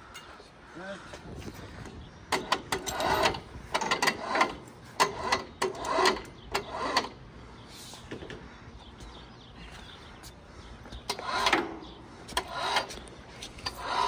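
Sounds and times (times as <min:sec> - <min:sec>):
electric hoist whirring: 0:01.8 - 0:07.3, 0:11.0 - 0:14.0.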